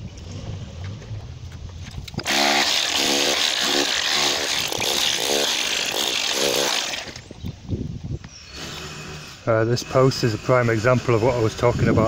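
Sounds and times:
hammer drill chiselling concrete: 2.2 - 7.2, 8.5 - 12.0.

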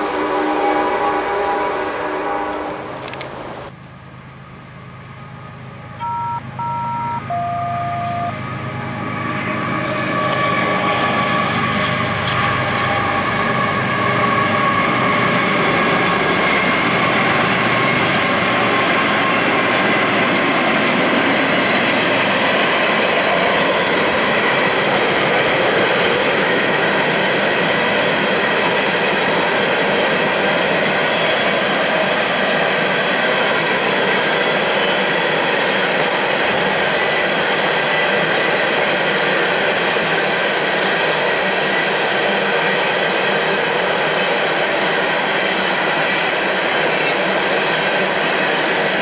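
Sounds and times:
train horn: 0.0 - 2.9, 6.0 - 17.5
freight train rolling over rails: 0.0 - 49.0
locomotive engine: 2.1 - 49.0.

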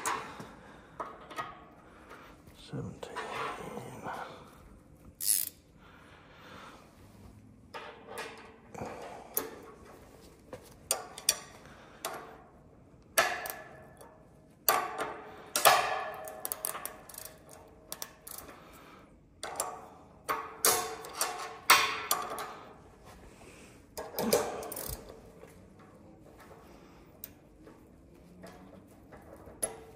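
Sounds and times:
ratcheting wrench clicking: 5.2 - 5.6, 15.5 - 18.6, 24.0 - 25.2.

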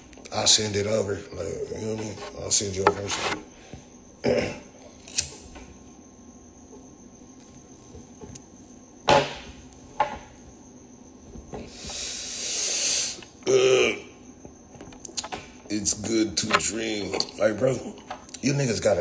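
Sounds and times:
long breathy exhale: 11.7 - 13.2.

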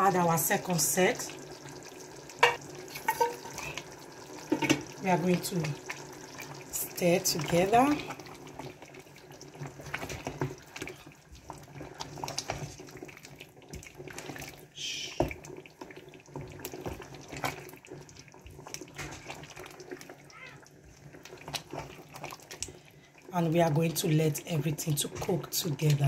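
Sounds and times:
spatula knocking against pot: 2.4 - 3.3
thick sauce sloshing in a pot: 5.6 - 23.3.

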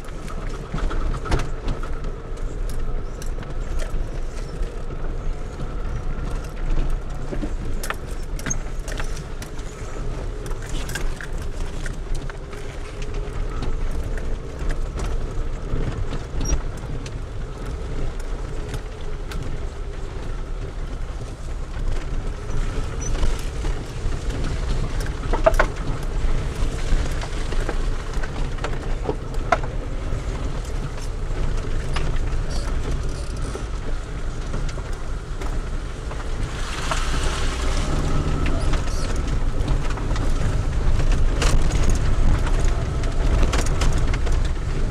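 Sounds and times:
car rumbling over dirt track: 0.0 - 44.9
knocks and rattles in car: 20.9 - 37.2.

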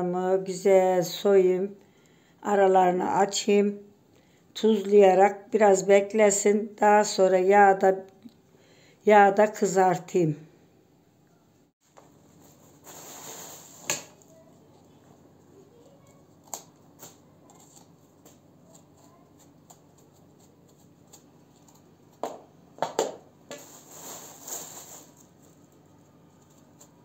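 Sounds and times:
plastic bag rustling: 11.8 - 14.5, 23.5 - 27.0.

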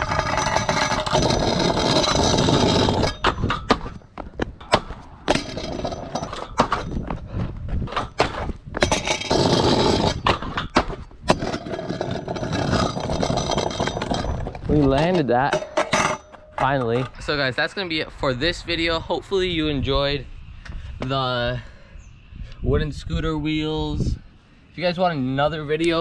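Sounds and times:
scooter wheels rolling on concrete: 0.0 - 18.2.

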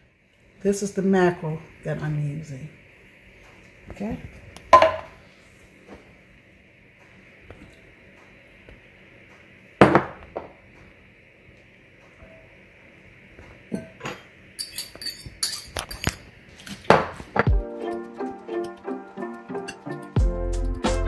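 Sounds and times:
kitchenware clinking against glass bowl: 13.7 - 16.2.

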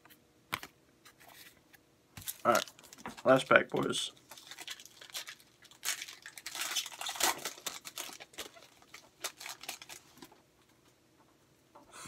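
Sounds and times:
card pack wrapper tearing and crinkling: 2.2 - 10.3.

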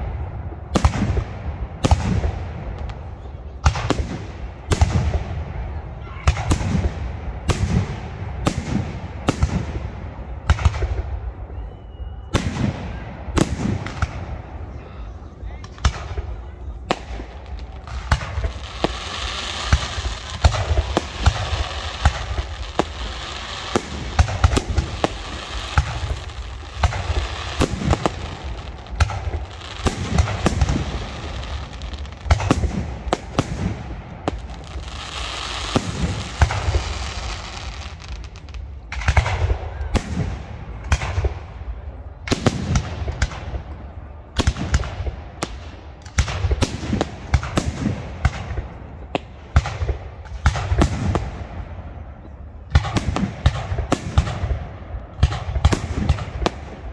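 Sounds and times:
dense firework crackling: 0.0 - 56.9
firework shells bursting: 17.9 - 32.6.

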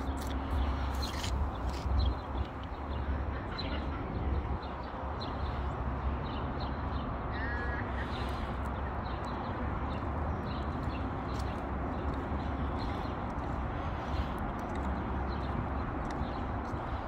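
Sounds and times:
footsteps on paving stones: 0.0 - 3.2, 8.6 - 17.0
low city rumble: 0.0 - 17.0.

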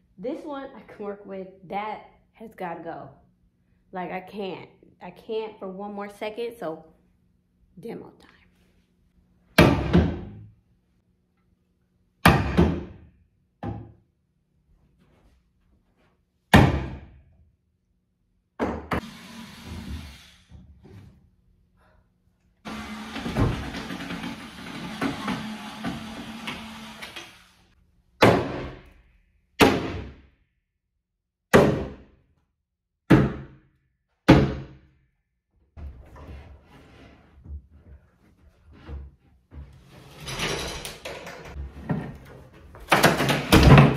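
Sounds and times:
loud bangs on wood: 9.6 - 10.4, 12.2 - 13.0, 28.2 - 28.8, 29.6 - 30.2, 31.5 - 32.1, 34.3 - 34.8.

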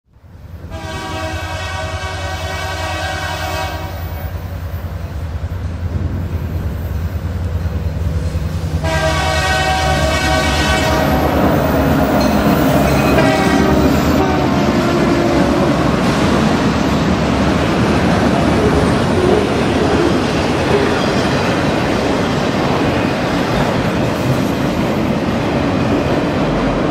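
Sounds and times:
train passing clatter: 0.2 - 26.9
train air horn blasts: 0.7 - 4.3, 8.8 - 11.6, 12.6 - 15.9.

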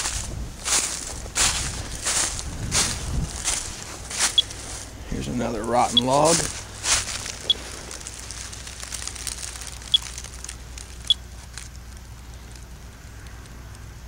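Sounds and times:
geiger counter chirping: 4.3 - 4.6, 5.8 - 6.5, 7.2 - 7.7, 9.7 - 10.4, 11.0 - 11.3.

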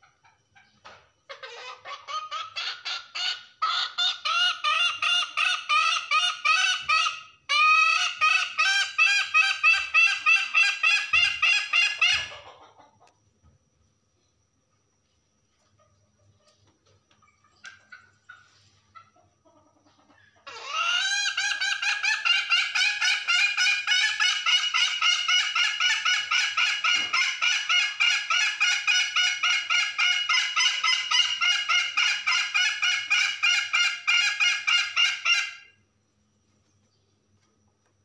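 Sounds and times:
hen clucking faintly: 0.0 - 13.5, 14.7 - 35.6
hen cackling rapidly: 1.3 - 13.1, 17.4 - 35.8.

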